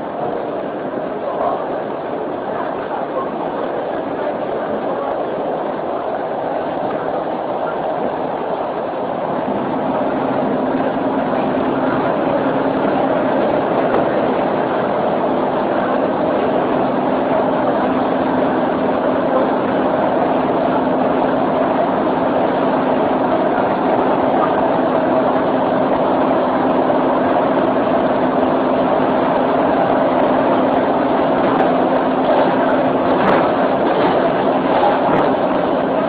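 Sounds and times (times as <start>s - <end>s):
train rumbling inside carriage: 0.0s - 36.0s.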